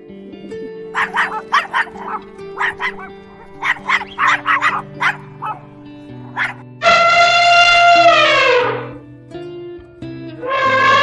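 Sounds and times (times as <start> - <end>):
soft background music: 0.0 - 11.0
small dog yapping: 0.9 - 6.6.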